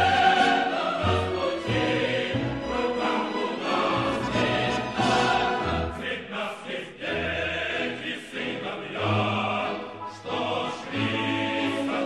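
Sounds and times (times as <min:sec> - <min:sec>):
instrumental accompaniment: 0:00.0 - 0:06.1
choir singing: 0:00.0 - 0:12.0.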